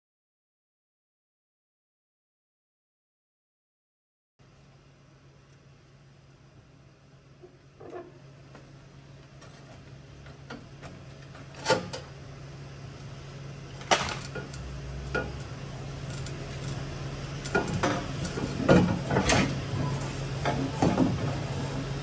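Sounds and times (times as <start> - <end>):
steady low hum: 4.4 - 22.0.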